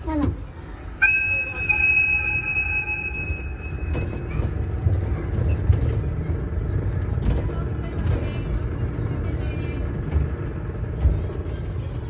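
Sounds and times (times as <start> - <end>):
miniature train rumbling on track: 0.0 - 12.0
high steady squeal: 1.0 - 4.8.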